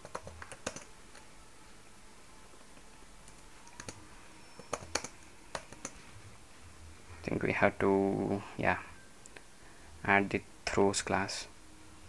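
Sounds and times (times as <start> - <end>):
keyboard keystrokes: 0.0 - 0.9, 3.3 - 4.0, 4.6 - 6.0.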